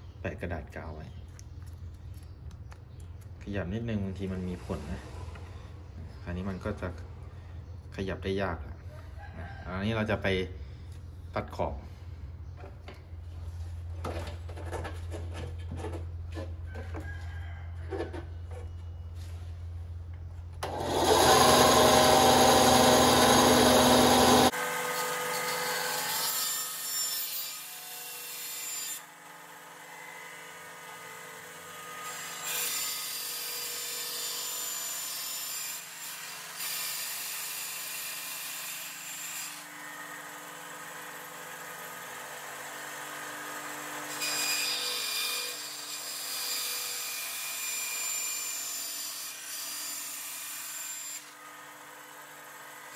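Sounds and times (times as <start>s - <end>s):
band saw cutting: 20.6s - 52.9s.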